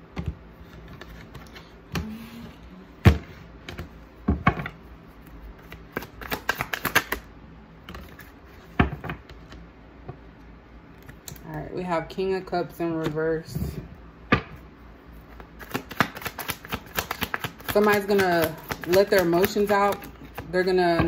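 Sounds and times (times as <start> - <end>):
cards shuffled on a table: 0.2 - 2.0.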